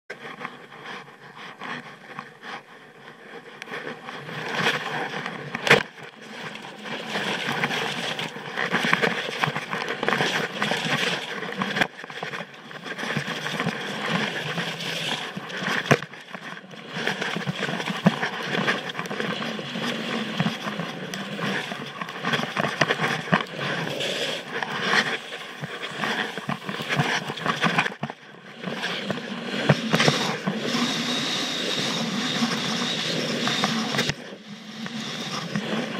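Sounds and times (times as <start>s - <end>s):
skis scraping over snow: 0.2s - 35.9s.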